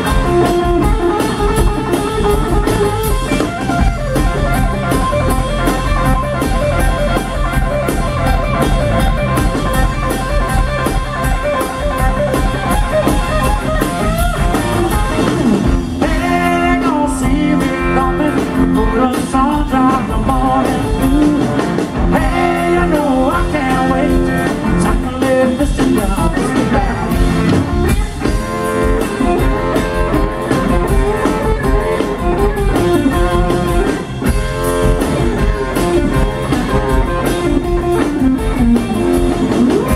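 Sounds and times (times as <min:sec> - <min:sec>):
electric blues band playing: 0:00.0 - 0:39.9
person singing: 0:16.0 - 0:27.4.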